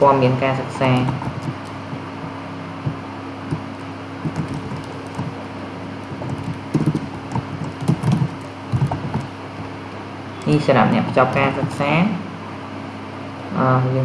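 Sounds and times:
steady low hum: 0.0 - 14.0
keyboard keystrokes: 0.8 - 5.4, 6.0 - 9.3.

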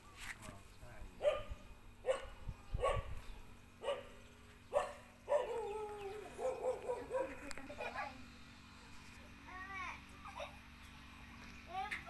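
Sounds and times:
puppy yelping: 4.7 - 7.5.

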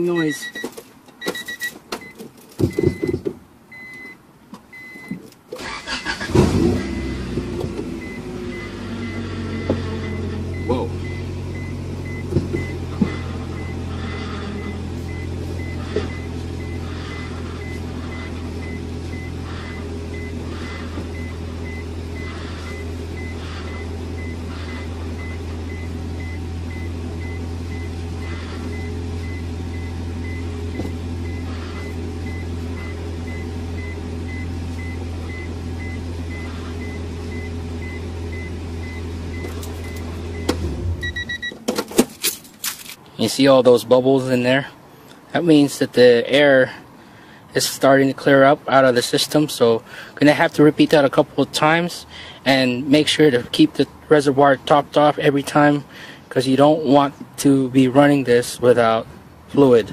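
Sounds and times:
power steering whine: 0.0 - 43.0
high beeps: 0.1 - 3.1, 3.7 - 4.2, 4.8 - 5.1, 8.0 - 12.8, 14.6 - 16.8, 17.6 - 19.4, 21.2 - 24.4, 28.7 - 41.6
car engine idling: 2.7 - 43.1.

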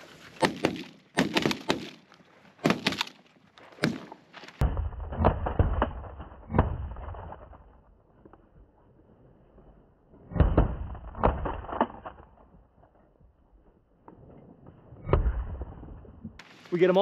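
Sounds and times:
shotgun shots: 0.4 - 2.0, 2.6 - 3.2.

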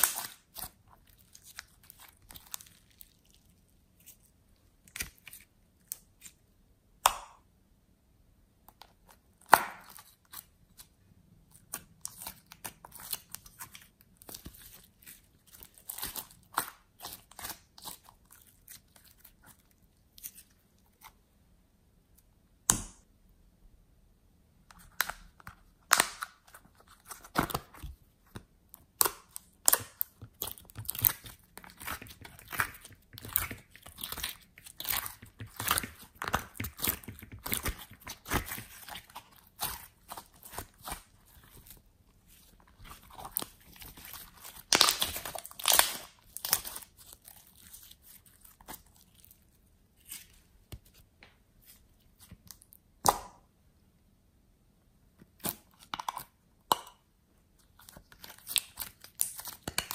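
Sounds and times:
slime clicking and popping: 0.0 - 0.7, 44.1 - 46.8.

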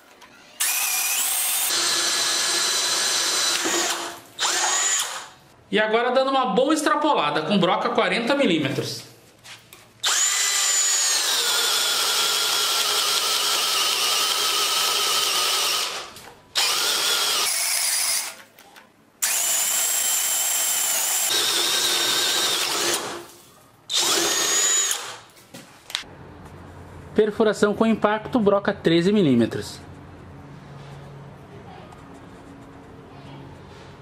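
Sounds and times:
cordless drill whining into wood: 0.6 - 5.4, 10.0 - 18.4, 19.2 - 23.3, 23.9 - 25.2.

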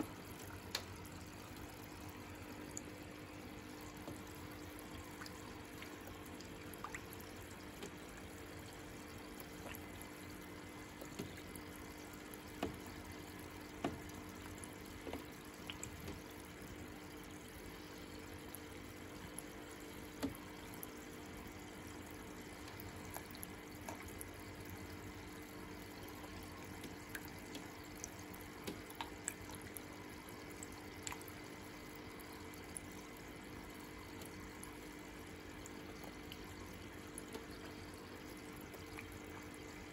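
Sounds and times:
water trickling and dripping: 0.0 - 39.9.

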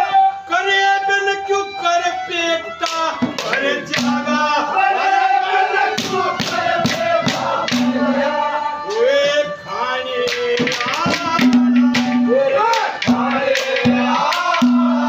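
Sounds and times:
harmonium: 0.0 - 15.0
sharp drum strokes: 3.2 - 4.5, 5.9 - 8.4, 10.5 - 15.0
man singing in high voice: 8.3 - 15.0.

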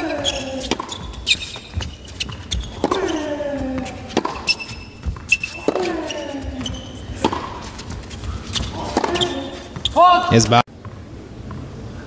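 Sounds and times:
racket striking tennis ball: 0.0 - 10.4
shoe squeaks on hard court: 0.2 - 10.0
player grunting: 2.8 - 4.1.

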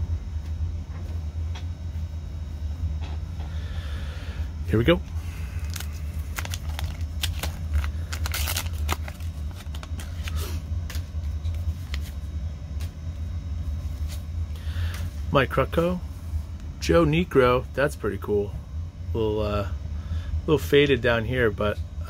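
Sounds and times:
steady low hum: 0.0 - 22.0
wrapper tearing and crinkling: 5.5 - 11.0.

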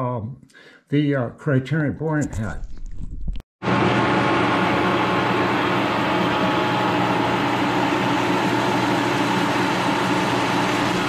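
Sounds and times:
milling machine humming: 3.6 - 11.0.

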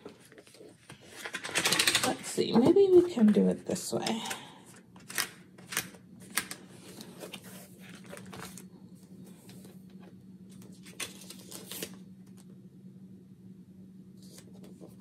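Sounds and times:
paper rustling and crinkling: 5.1 - 9.8, 10.5 - 12.0.

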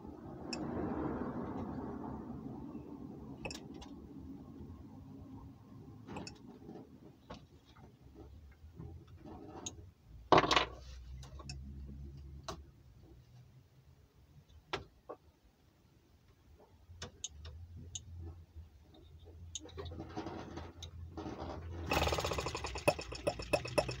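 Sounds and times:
clicks of hands working on engine: 21.9 - 24.0
short engine burst: 21.9 - 24.0.

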